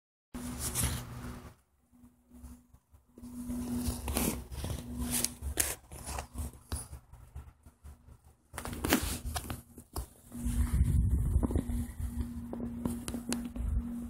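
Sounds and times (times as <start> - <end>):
faint steady hum: 0.4 - 14.0
camera handling noise: 8.5 - 10.2
low rumble: 10.3 - 14.0.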